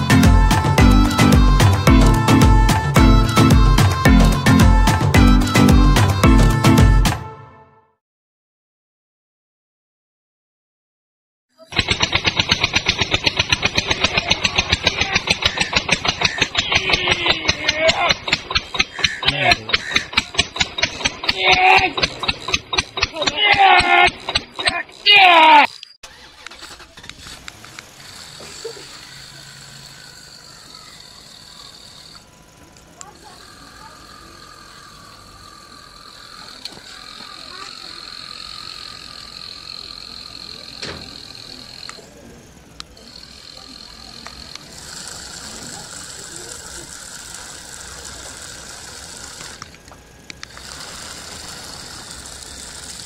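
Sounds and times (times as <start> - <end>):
toy motor high-pitched whine: 0.0 - 7.2, 11.6 - 53.0
clicks: 25.7 - 27.9, 49.4 - 50.8.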